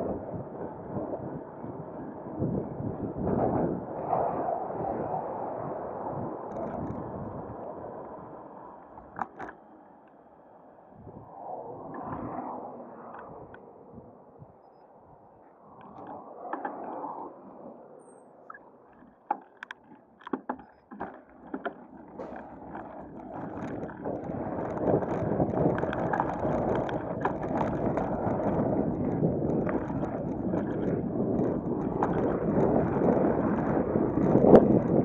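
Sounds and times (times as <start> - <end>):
wind buffeting microphone: 0.0 - 35.0
sharp clicks and knocks: 9.0 - 10.2, 18.5 - 35.0
tyre and road rumble: 15.4 - 35.0.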